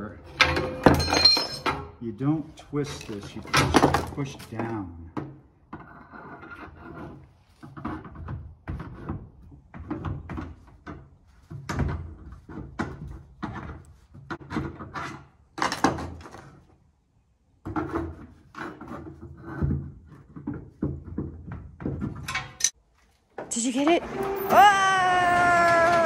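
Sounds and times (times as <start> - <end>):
metal knocks and rattles: 0.0 - 2.0.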